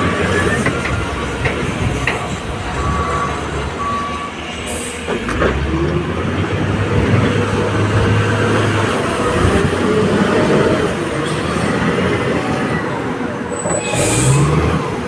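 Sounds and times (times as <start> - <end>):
diesel engine running: 0.0 - 11.6.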